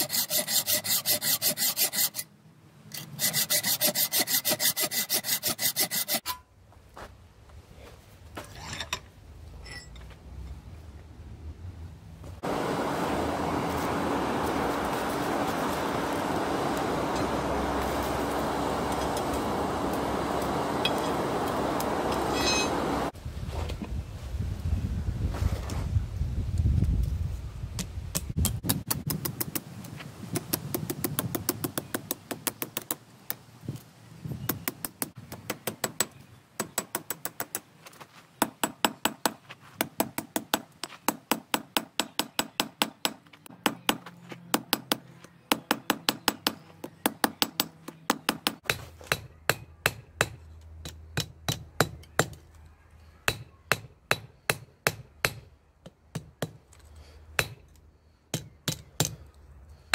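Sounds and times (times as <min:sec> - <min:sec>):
hammer ringing on anvil: 0:22.3 - 0:22.8.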